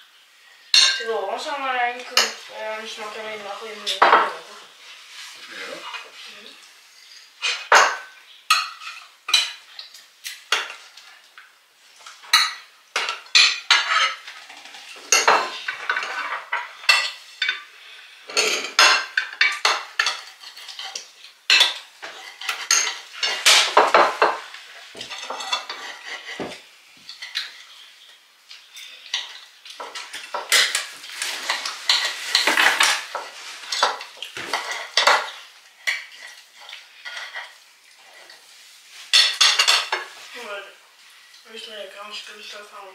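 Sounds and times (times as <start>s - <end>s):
cutlery clinking on plates: 0.7s - 1.1s, 7.1s - 17.7s, 18.3s - 38.4s, 39.0s - 40.2s.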